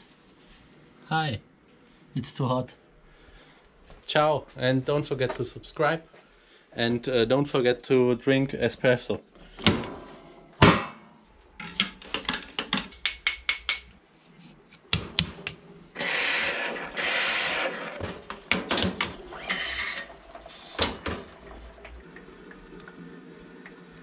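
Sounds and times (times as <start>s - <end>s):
loud metal knock: 10.6s - 11.1s
espresso machine hissing: 16.0s - 18.0s, 19.2s - 21.0s.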